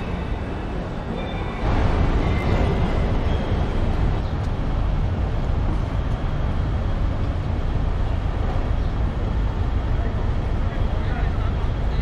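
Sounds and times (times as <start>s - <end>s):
large vehicle engine rumbling: 0.0s - 12.0s.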